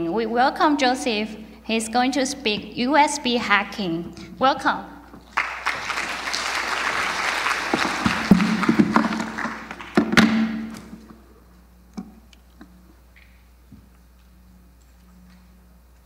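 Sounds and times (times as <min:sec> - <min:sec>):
audience applauding: 0:05.3 - 0:10.7
louder knocks: 0:07.7 - 0:10.8.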